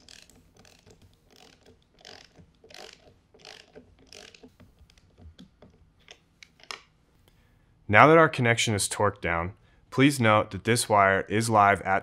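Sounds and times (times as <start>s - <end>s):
ratcheting wrench clicking: 0.0s - 6.9s.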